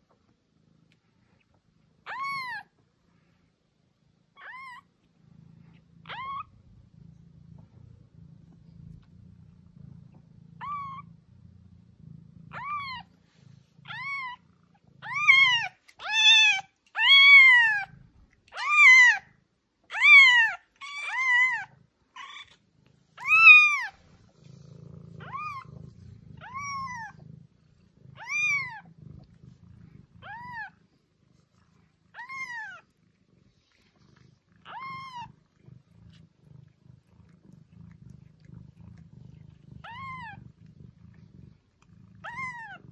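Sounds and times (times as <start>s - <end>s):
kitten mewing: 28.1s - 28.9s.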